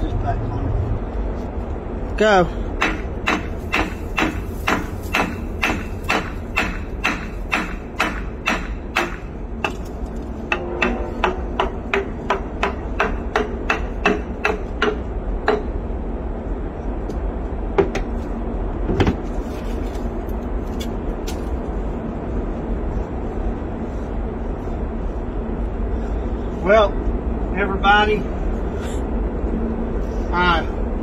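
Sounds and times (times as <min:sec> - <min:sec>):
hammer blows on metal: 0:10.4 - 0:15.8.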